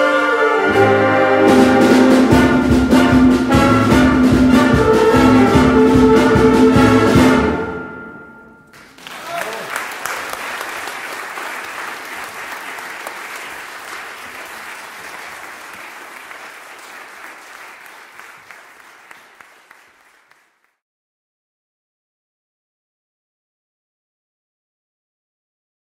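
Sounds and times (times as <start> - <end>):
audience applauding: 8.7 - 20.8.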